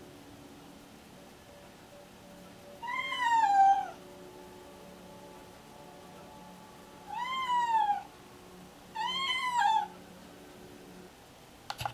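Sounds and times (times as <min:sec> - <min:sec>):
cat meowing: 0:02.8 - 0:04.0, 0:07.1 - 0:08.1, 0:09.0 - 0:09.9.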